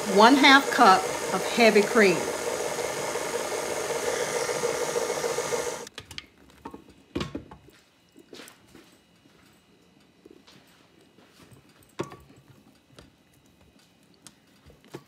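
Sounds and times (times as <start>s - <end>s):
electric stand mixer running: 0.0s - 5.9s.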